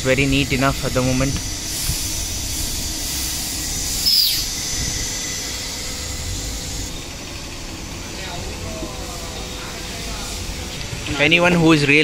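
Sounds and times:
short falling whistle: 4.0s - 4.5s.

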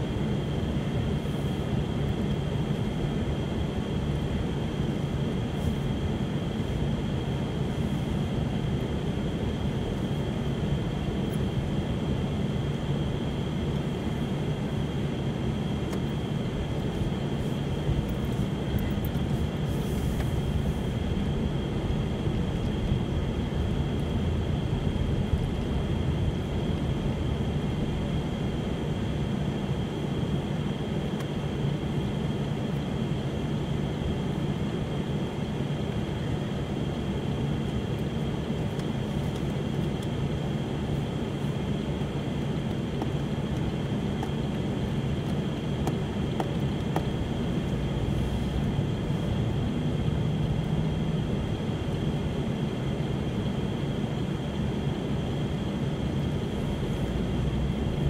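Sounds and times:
engine and tyre rumble: 0.0s - 58.0s.

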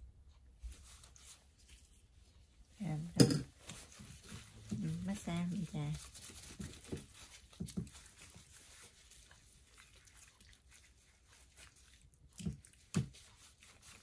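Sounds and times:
glove rustling: 3.6s - 9.8s
wet squishing of raw meat: 5.8s - 14.0s.

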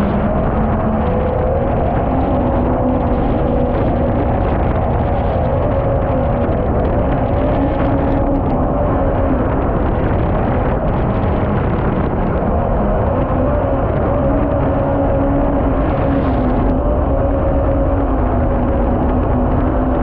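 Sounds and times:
boat engine running at speed: 0.0s - 20.0s
wind: 0.0s - 20.0s.

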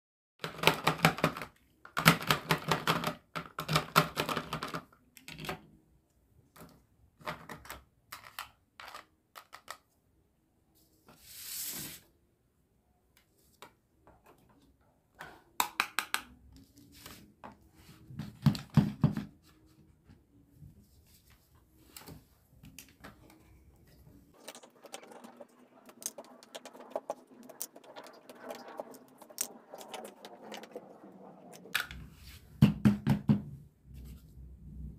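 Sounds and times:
plastic toys clicking and rattling: 0.4s - 5.7s, 6.6s - 9.9s.

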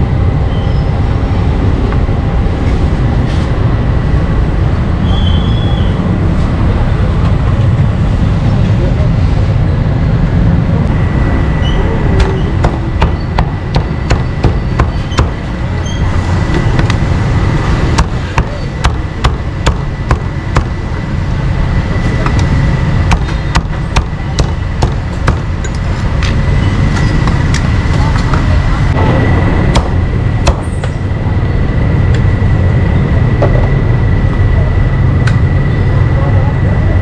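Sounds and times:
low rumble of street noise: 0.0s - 37.0s
cleaver chopping meat: 12.2s - 15.4s, 18.0s - 20.8s, 23.1s - 25.5s.

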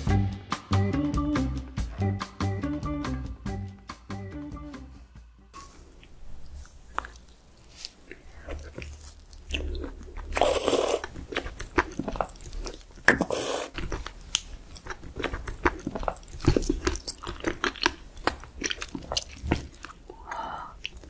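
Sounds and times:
slurping: 6.0s - 21.0s
wet chewing smacks: 6.0s - 21.0s.

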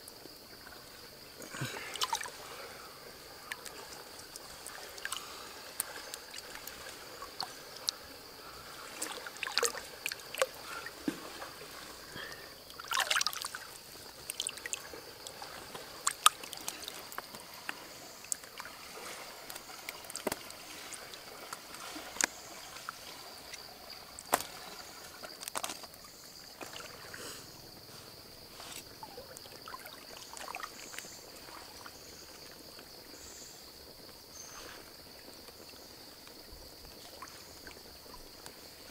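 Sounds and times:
stream water trickling: 0.0s - 38.9s
hands splashing in water: 8.9s - 23.6s.

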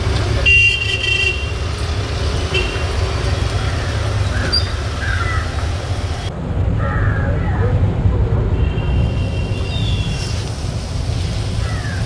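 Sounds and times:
street traffic rumble: 0.0s - 12.0s
vehicle horn tooting: 0.4s - 1.6s, 2.5s - 2.9s.

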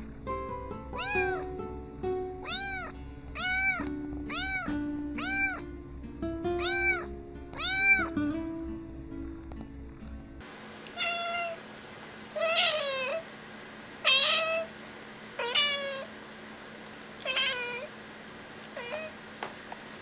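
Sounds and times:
cat meowing: 1.0s - 1.6s, 2.4s - 5.7s, 6.6s - 8.2s, 11.0s - 11.6s, 12.4s - 13.2s, 14.0s - 14.7s, 15.4s - 16.1s, 17.2s - 17.9s, 18.8s - 19.2s.

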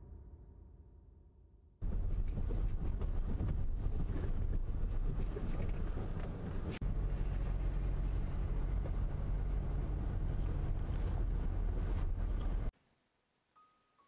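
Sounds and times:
low steady hum: 0.0s - 13.6s
car driving rumble: 1.8s - 12.7s.

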